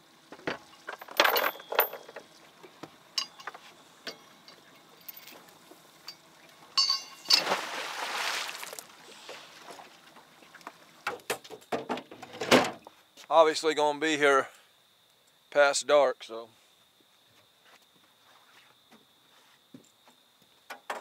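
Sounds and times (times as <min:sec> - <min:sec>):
gear clinking and knocking: 0:00.3 - 0:02.3, 0:03.2 - 0:06.2, 0:06.8 - 0:07.5.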